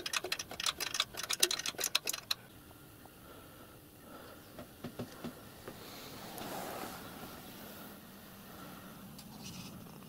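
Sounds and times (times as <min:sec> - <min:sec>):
small metal clicks and taps: 0:00.0 - 0:02.4.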